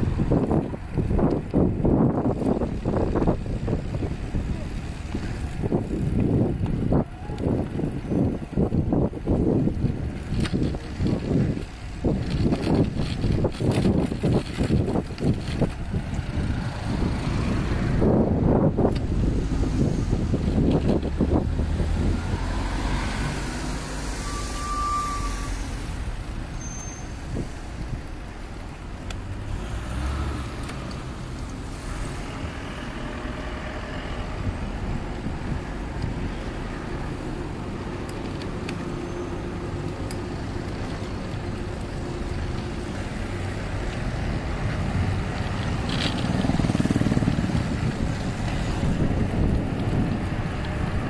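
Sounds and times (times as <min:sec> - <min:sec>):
cars passing: 0:00.0 - 0:51.0.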